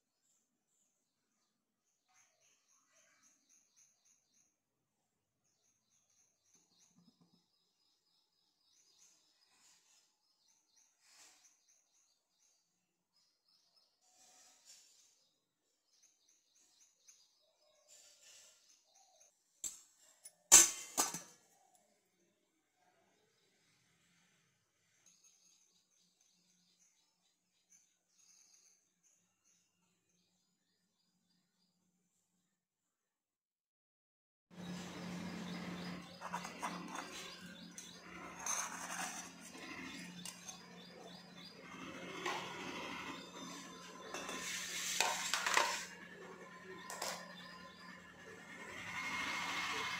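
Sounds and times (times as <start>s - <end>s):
steady low hum: 34.6s - 49.9s
knife scraping metal cup: 35.6s - 48.0s.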